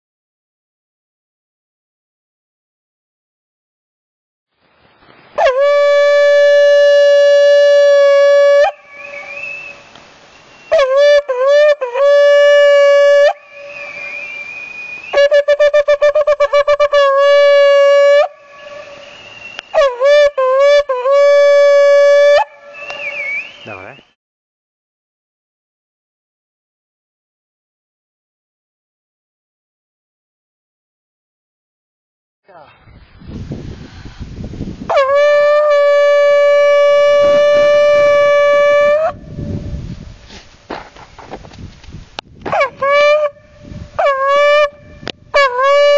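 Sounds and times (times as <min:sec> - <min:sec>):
shofar long steady note: 0:05.4 - 0:09.8, 0:10.7 - 0:14.4, 0:15.2 - 0:23.4, 0:34.9 - 0:40.1, 0:42.8 - 0:45.9
ram's horn blasts: 0:05.4 - 0:24.0, 0:34.9 - 0:39.2, 0:42.5 - 0:45.9.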